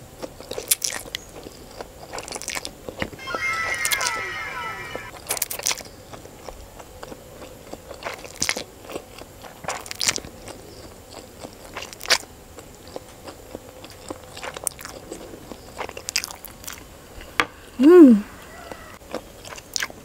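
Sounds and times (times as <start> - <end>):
wet chewing clicks: 0.2 - 2.7, 7.0 - 16.8, 19.1 - 20.0.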